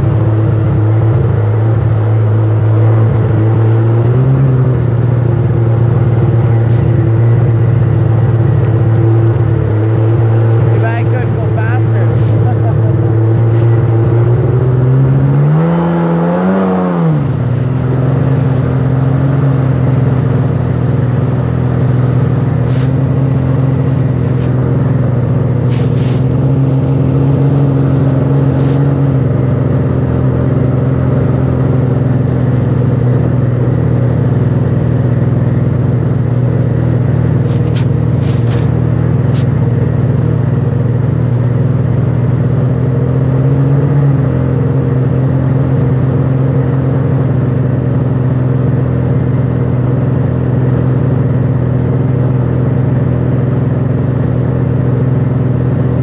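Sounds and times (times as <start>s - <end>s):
watercraft engine revving: 5.4s - 32.2s
short crackles: 22.6s - 23.0s, 24.2s - 25.0s, 25.6s - 29.0s, 37.4s - 39.6s.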